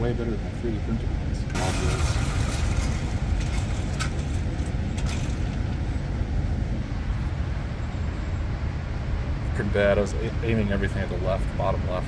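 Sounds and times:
electric target carrier rumbling: 1.5s - 8.1s.

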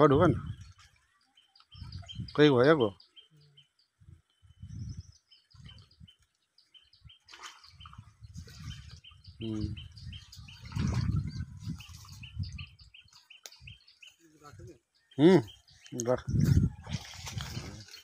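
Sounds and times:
water splashing and sloshing: 0.5s - 2.1s, 7.1s - 9.2s, 10.0s - 13.6s, 16.0s - 18.0s
small bird chirping: 1.1s - 14.3s.

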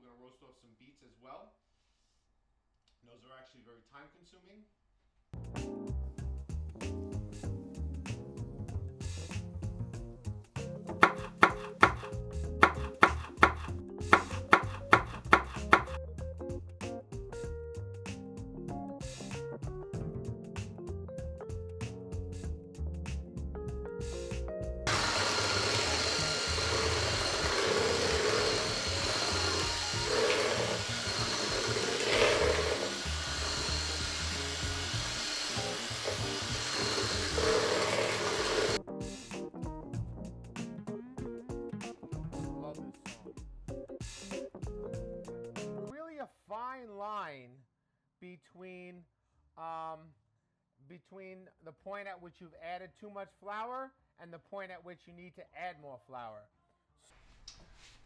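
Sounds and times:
background music: 5.4s - 46.0s
knife chopping on wooden board: 11.0s - 16.0s
stand mixer motor running: 11.0s - 16.0s, 24.9s - 38.8s.

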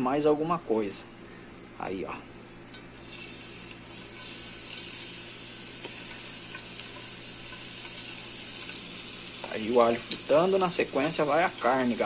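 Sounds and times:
garlic sizzling in hot lard: 2.7s - 12.0s.

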